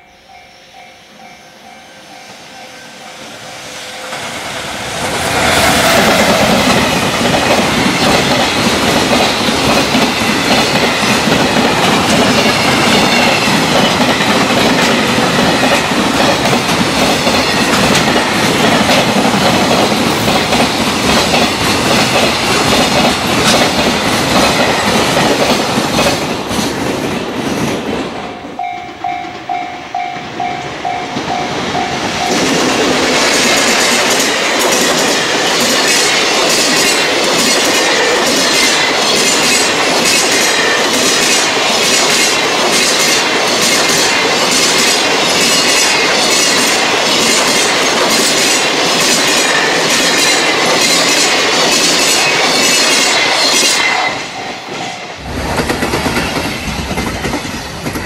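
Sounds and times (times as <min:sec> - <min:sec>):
level-crossing warning bell: 0:00.0 - 0:04.3, 0:28.2 - 0:32.8, 0:52.0 - 0:55.3
freight train wheels clacking: 0:00.3 - 0:58.0.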